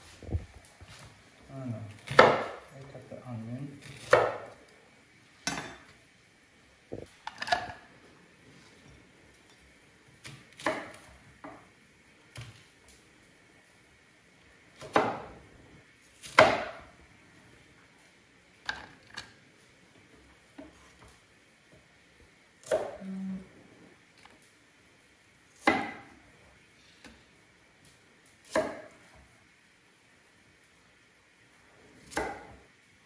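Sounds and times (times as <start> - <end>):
knife chopping on wooden board: 2.0 - 2.6, 3.9 - 4.6, 10.2 - 11.6, 14.8 - 15.4, 16.2 - 16.8, 22.6 - 23.0, 25.6 - 26.1, 28.4 - 28.9, 32.0 - 32.6.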